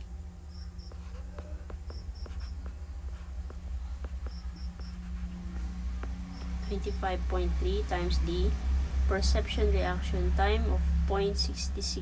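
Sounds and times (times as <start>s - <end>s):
low electrical hum: 0.0s - 12.0s
cricket chirping: 0.4s - 1.0s, 4.3s - 5.0s
stylus tapping tablet screen: 0.6s - 7.0s.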